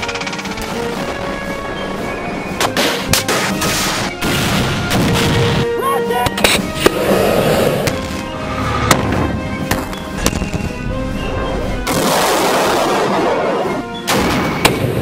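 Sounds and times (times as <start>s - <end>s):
background music: 0.0s - 15.0s
explosions: 2.8s - 5.6s, 11.8s - 15.0s.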